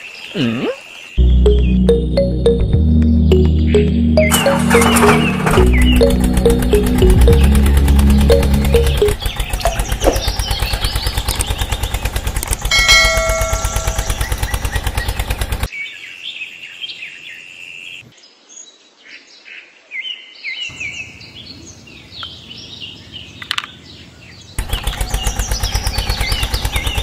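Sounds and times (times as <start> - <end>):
birds chirping: 0.0 - 18.1, 20.7 - 27.0
faint outdoor background: 0.0 - 27.0
music with fast steady beat: 1.2 - 9.2.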